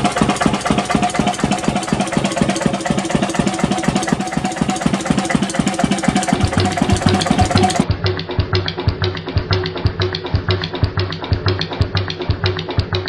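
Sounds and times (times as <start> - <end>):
diesel engine knocking: 0.0 - 7.9.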